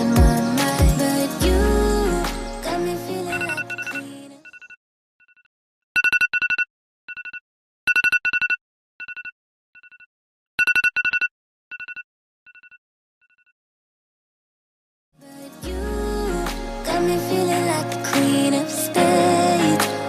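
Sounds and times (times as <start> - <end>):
mobile phone ringtone trill: 3.3 - 4.8.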